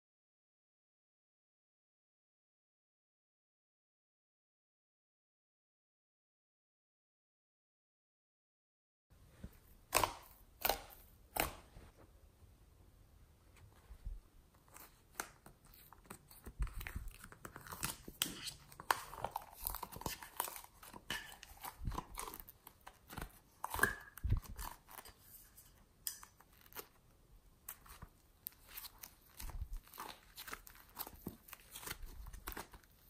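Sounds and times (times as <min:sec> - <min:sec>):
clay crackling and tearing: 0:09.7 - 0:11.9, 0:14.5 - 0:33.0.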